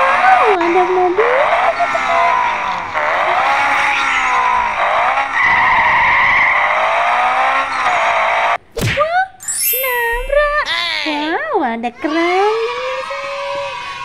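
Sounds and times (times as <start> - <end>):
race car engine revving: 0.0 - 8.6
tyre squeal: 9.4 - 10.6.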